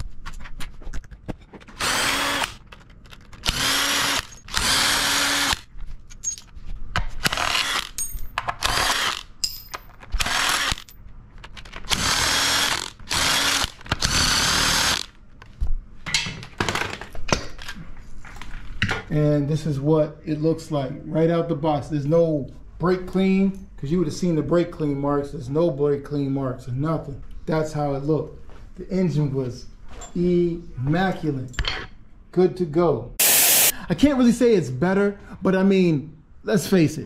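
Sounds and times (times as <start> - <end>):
cordless power tool spinning: 1.8 - 2.6, 3.4 - 5.6, 7.3 - 8.0, 8.6 - 9.2, 10.2 - 10.9, 11.9 - 15.1, 33.2 - 33.7.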